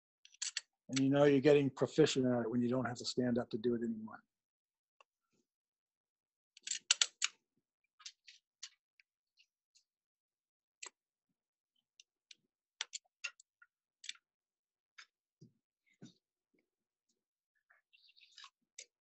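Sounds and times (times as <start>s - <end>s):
small metal clicks: 0.2s - 0.7s, 6.6s - 7.4s, 12.0s - 14.3s.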